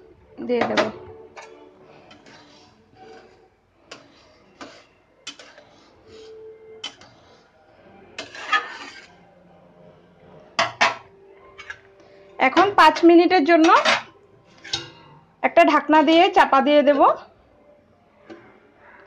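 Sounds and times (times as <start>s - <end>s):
spatula scraping pan: 0.6s - 9.3s, 12.5s - 15.2s
metal spatula clinking on pan: 3.9s - 5.6s, 6.8s - 7.2s, 10.6s - 11.8s, 12.6s - 15.2s.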